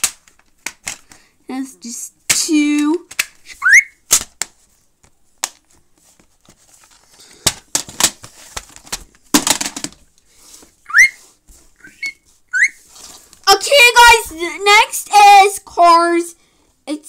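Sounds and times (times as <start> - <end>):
plastic cases clicking: 0.0 - 1.2, 3.0 - 3.4, 7.4 - 10.0
rustling: 3.2 - 13.5.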